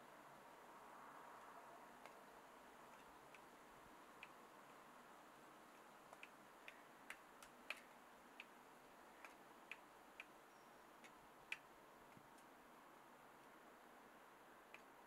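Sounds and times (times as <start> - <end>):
faint hiss: 0.0 - 15.0
small irregular clicks: 2.9 - 3.5, 4.1 - 4.8, 5.7 - 10.4, 11.0 - 12.6, 14.7 - 15.0.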